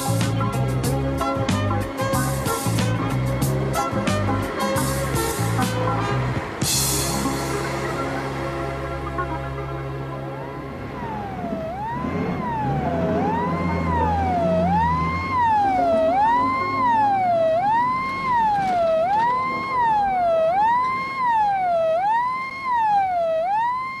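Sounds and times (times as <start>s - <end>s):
low car engine hum: 0.0s - 23.9s
siren wailing: 9.0s - 24.0s.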